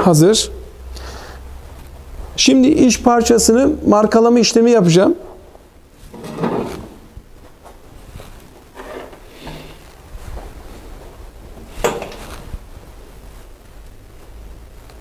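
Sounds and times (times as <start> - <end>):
small tools handling rubs: 8.8 - 9.9.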